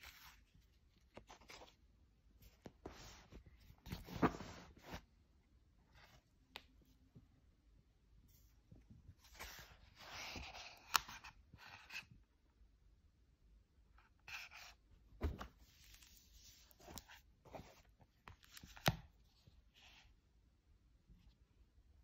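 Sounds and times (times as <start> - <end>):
book pages rustling: 0.0 - 1.8, 2.4 - 5.1, 9.1 - 12.1, 14.2 - 20.0
sharp knocks of handled book: 15.2 - 15.5.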